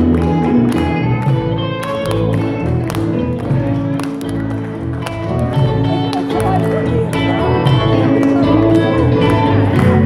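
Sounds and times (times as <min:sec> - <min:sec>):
bass guitar: 0:00.0 - 0:10.0
electric guitars: 0:00.0 - 0:10.0.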